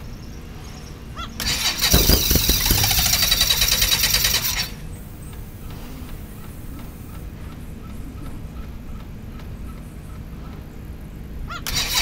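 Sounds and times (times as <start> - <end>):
electric starter cranking engine: 1.4 - 5.0, 11.7 - 12.0.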